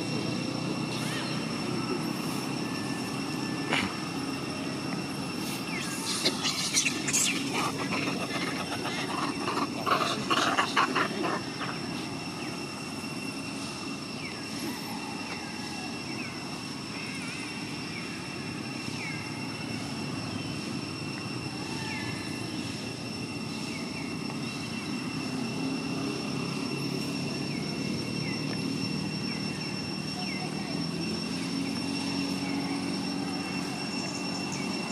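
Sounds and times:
high-pitched whine: 0.0 - 34.9
small birds chirping: 5.4 - 12.7.

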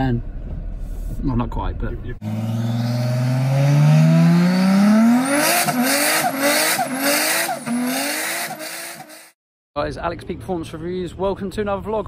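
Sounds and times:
car engine accelerating: 2.2 - 9.3.

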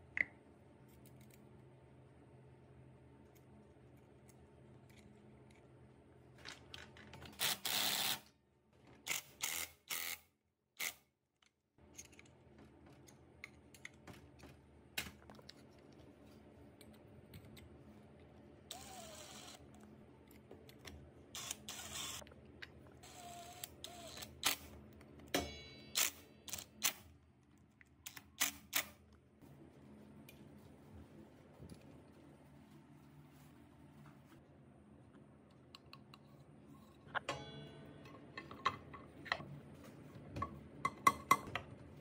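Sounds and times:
cordless drill whirring: 18.7 - 19.6.

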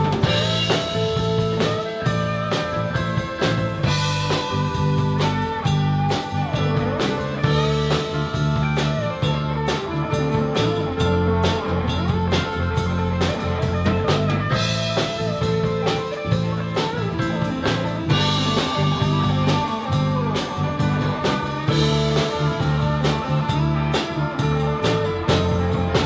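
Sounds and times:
bass guitar: 0.0 - 26.0
drum kit strikes: 0.0 - 26.0
electric guitar with bent notes: 0.0 - 26.0.

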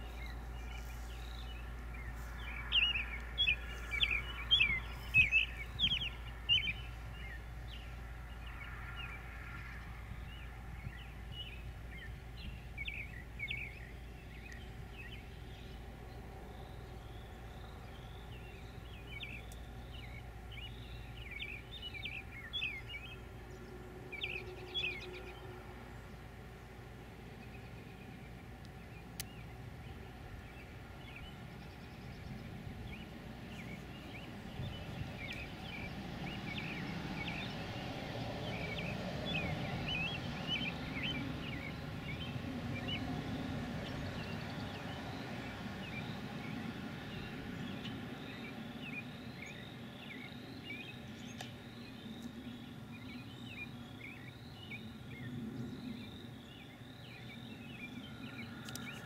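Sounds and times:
bird chirps and calls: 0.0 - 9.2
low steady rumble: 0.0 - 48.0.

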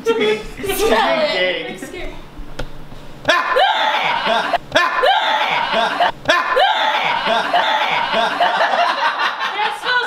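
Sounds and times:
short looped laugh: 3.3 - 9.5.

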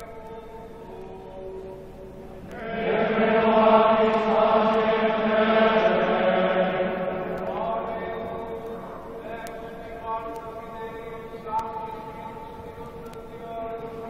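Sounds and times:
choir singing a chant: 2.5 - 12.5.

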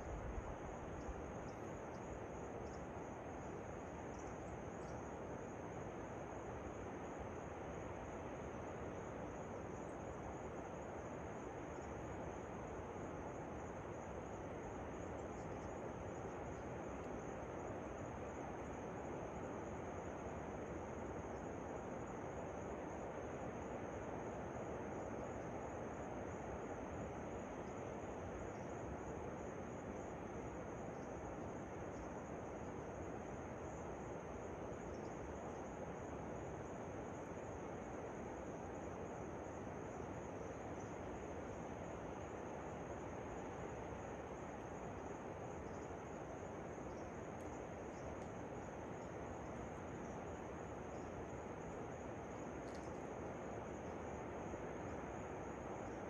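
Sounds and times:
high insect drone: 0.0 - 56.0.

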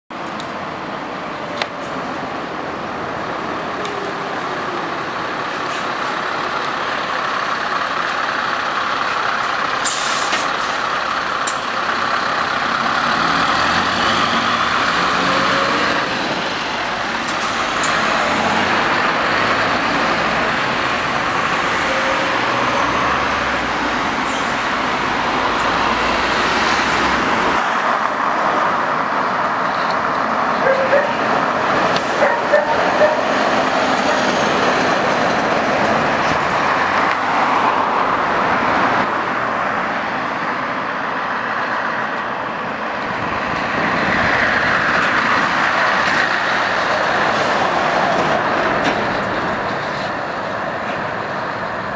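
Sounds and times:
truck diesel engine: 0.1 - 51.9
tyre and road noise: 0.1 - 51.9
air hiss: 9.8 - 10.8.

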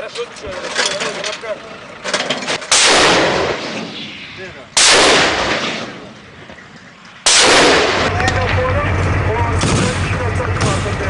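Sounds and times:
gunfire cracks: 2.7 - 4.2, 4.8 - 6.1, 7.2 - 8.4
loud blasts with rushing tail: 2.7 - 6.5, 7.2 - 11.0.

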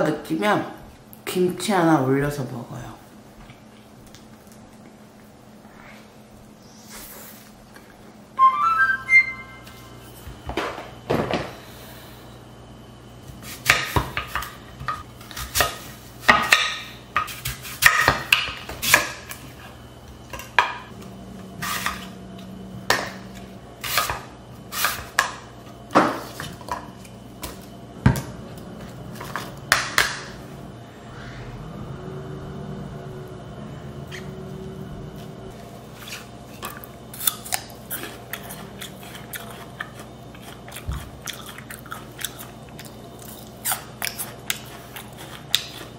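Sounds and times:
knife cutting apple on board: 22.8 - 26.8.

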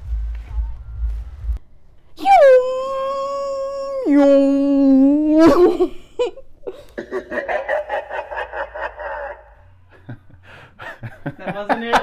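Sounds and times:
woman giggling: 5.3 - 12.0.

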